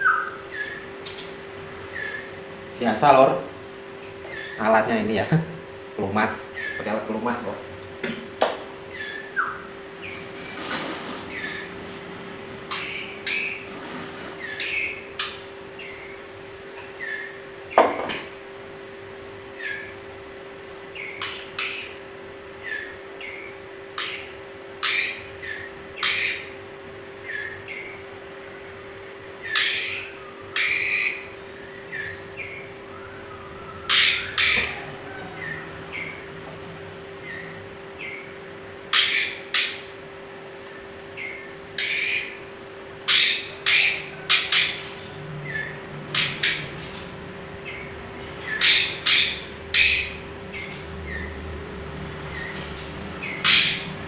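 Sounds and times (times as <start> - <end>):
harsh bird squawks: 0.0 - 2.4, 4.1 - 4.9, 6.3 - 7.0, 8.9 - 10.3, 11.2 - 11.7, 12.7 - 13.7, 14.4 - 16.3, 20.9 - 22.0, 22.6 - 26.6, 29.4 - 36.3, 37.2 - 40.0, 41.2 - 46.8, 47.6 - 51.4, 53.2 - 54.0
faint steady hum: 0.0 - 54.0
young birds calling: 0.0 - 54.0.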